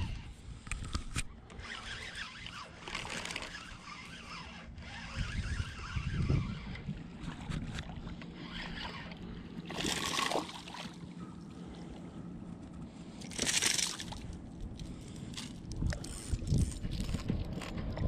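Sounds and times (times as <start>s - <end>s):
fish splashing in water: 9.6s - 11.0s, 13.2s - 14.2s.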